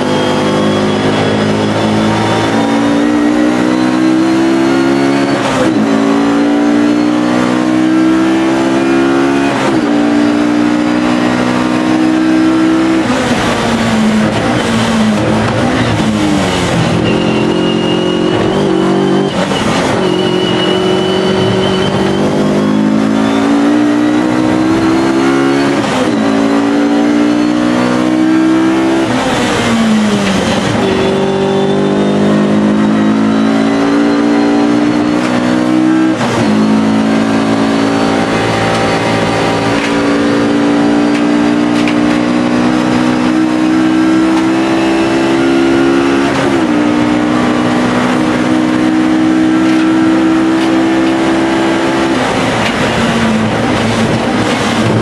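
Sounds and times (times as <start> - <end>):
race car engine at full throttle: 0.0 - 55.0.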